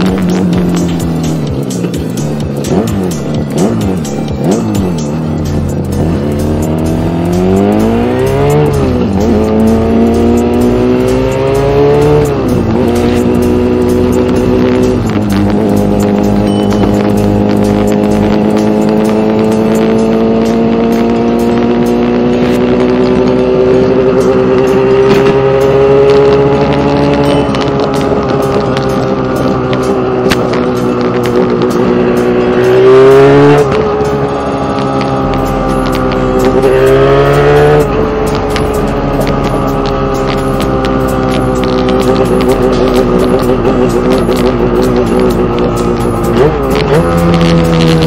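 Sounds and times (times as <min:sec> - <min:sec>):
two-stroke minibike engine accelerating: 0:00.0 - 0:48.0.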